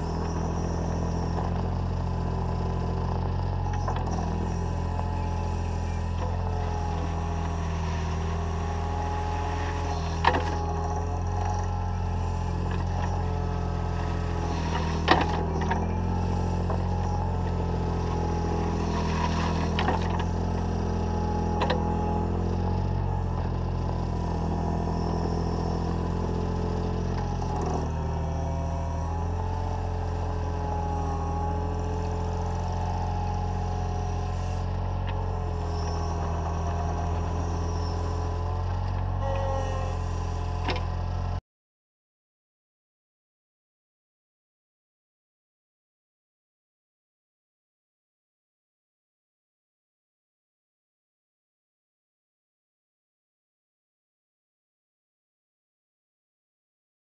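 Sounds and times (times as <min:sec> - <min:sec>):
diesel engine running: 0:00.0 - 0:41.4
hydraulic whine: 0:00.0 - 0:41.4.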